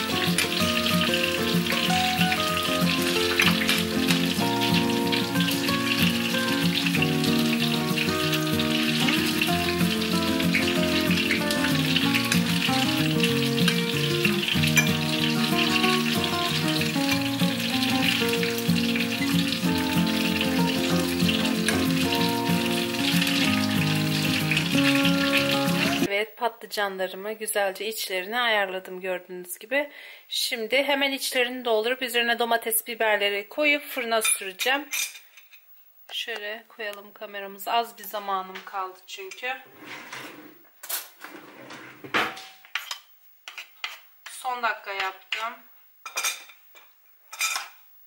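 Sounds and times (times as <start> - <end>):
background music of held chords: 0.0 - 26.1.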